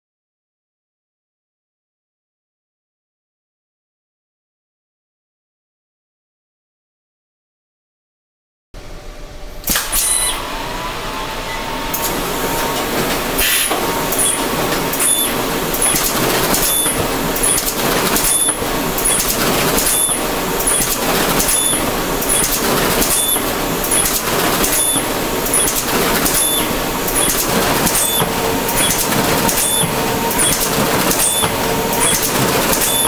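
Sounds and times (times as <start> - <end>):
die-cutting press running: 9.6 - 33.0
machine knocks: 12.7 - 33.0.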